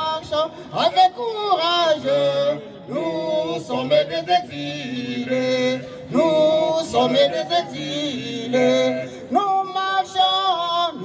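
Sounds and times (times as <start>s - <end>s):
man singing over loudspeaker: 0.0s - 11.0s.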